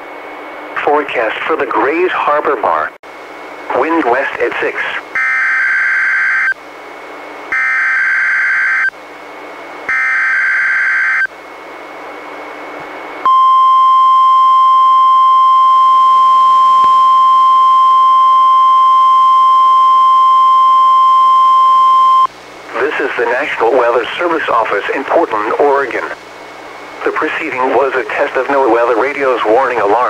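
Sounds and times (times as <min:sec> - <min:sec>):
steady alarm tone: 0:05.1 - 0:06.6, 0:07.5 - 0:09.0, 0:09.9 - 0:11.3, 0:13.2 - 0:22.3.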